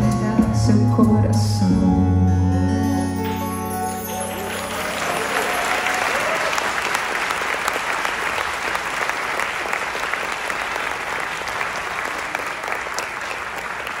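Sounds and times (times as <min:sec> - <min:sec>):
audience applauding: 0:03.3 - 0:14.0.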